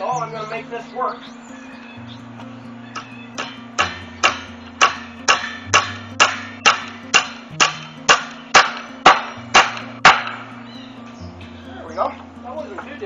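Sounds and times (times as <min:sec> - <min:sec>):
hammer driving a nail: 0:03.4 - 0:10.3.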